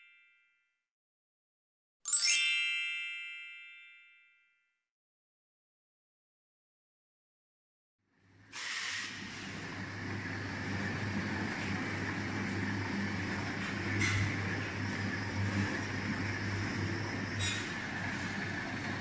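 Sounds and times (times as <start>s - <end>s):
mixer motor humming and whirring: 8.2s - 19.0s.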